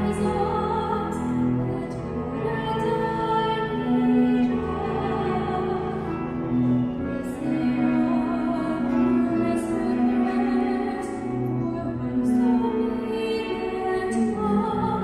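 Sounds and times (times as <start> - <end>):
cello: 0.0 - 15.0
piano: 0.0 - 15.0
woman singing slow song: 0.0 - 15.0.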